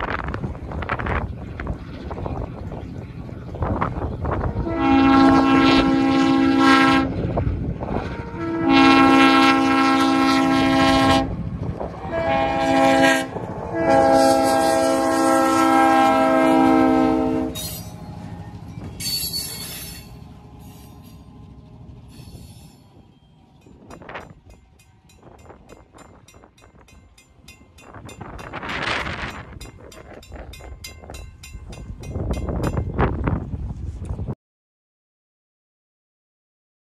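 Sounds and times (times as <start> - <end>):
train rolling over crossing: 0.0 - 34.3
locomotive air horn: 4.4 - 7.3, 7.9 - 11.4, 12.0 - 18.4.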